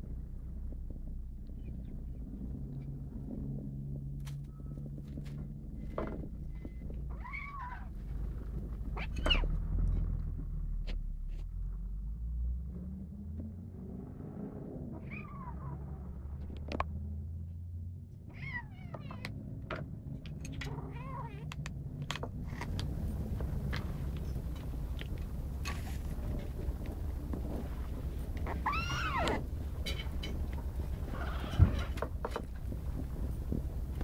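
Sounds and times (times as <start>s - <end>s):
kitten crying: 7.1s - 7.9s, 18.3s - 19.3s, 20.6s - 21.5s, 28.6s - 29.4s
kitten growling: 20.4s - 21.6s.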